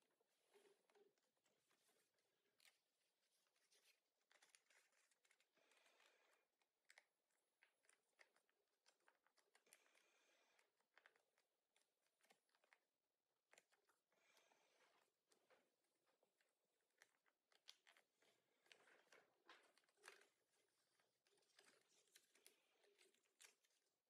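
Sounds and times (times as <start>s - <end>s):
paper being folded and creased: 0.2s - 9.8s, 10.8s - 14.0s, 14.9s - 24.0s.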